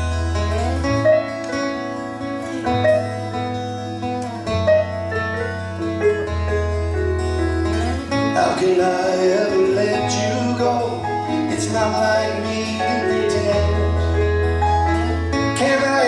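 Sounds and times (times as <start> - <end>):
country band playing: 0.0 - 16.0
man singing: 8.2 - 14.5, 15.4 - 16.0.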